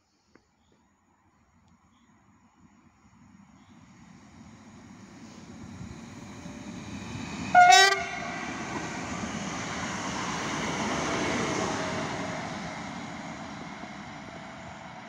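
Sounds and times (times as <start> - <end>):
train wheels rushing on rails: 3.3 - 15.0.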